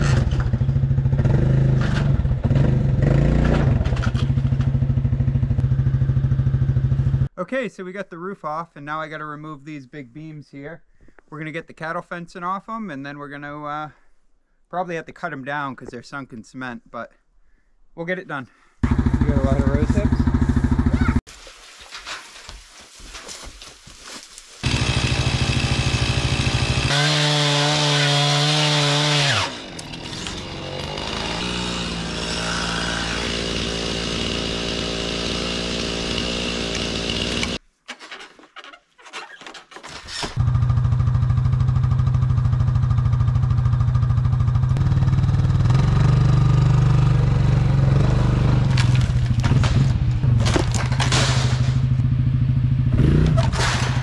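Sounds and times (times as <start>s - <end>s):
chainsaw cutting wood: 24.6s - 37.6s, 47.8s - 52.0s.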